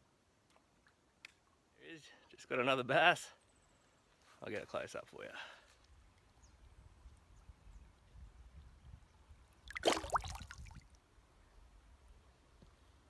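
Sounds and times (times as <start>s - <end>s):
water sloshing and splashing: 9.7s - 10.8s.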